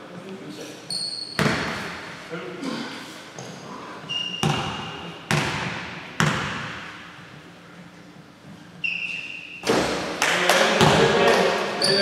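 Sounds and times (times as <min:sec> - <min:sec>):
shoe squeaks: 0:00.8 - 0:01.8, 0:03.4 - 0:05.2, 0:08.7 - 0:09.7, 0:11.8 - 0:12.0
basketball bouncing on gym floor: 0:01.3 - 0:02.0, 0:04.3 - 0:07.0, 0:10.8 - 0:11.3.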